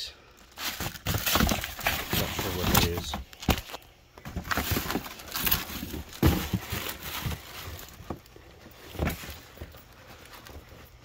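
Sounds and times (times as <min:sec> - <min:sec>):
cardboard boxes knocking: 0:00.8 - 0:09.8
tissue paper rustling: 0:04.4 - 0:11.0.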